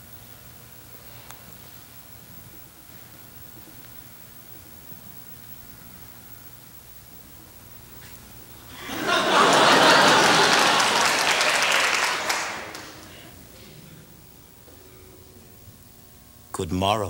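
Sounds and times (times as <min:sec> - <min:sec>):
audience applauding: 0:08.8 - 0:13.4.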